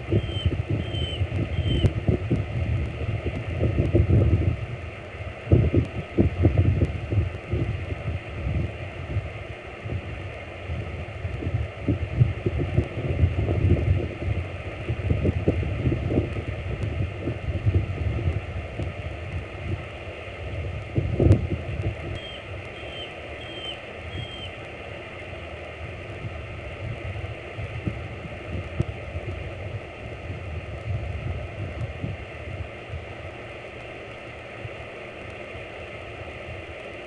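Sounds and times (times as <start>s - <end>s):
wind buffeting microphone: 0.0s - 24.8s, 25.7s - 33.4s
eagle chirping: 0.1s - 1.9s, 22.2s - 24.6s.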